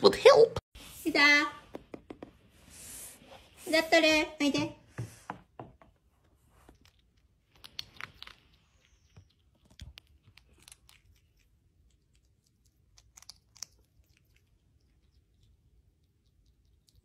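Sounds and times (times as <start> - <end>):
animal chewing and crunching: 6.5 - 17.0.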